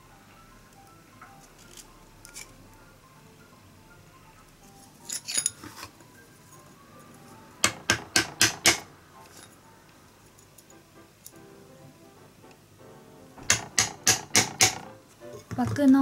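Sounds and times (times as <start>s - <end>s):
tools clattering: 5.0s - 5.9s
wooden mallet knocking on blade: 7.6s - 8.9s, 13.4s - 15.8s.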